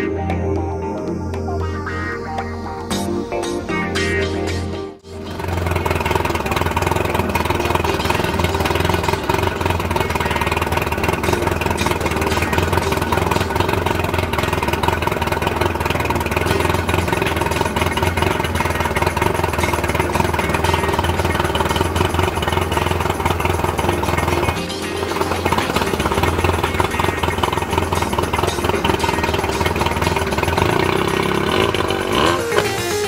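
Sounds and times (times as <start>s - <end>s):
outboard motor idling: 5.0s - 33.0s.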